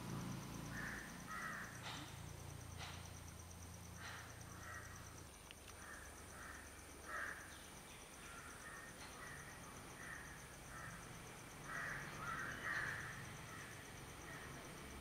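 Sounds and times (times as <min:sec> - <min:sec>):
birds cawing: 0:00.7 - 0:02.1, 0:04.0 - 0:05.0, 0:05.8 - 0:07.5, 0:11.6 - 0:13.7.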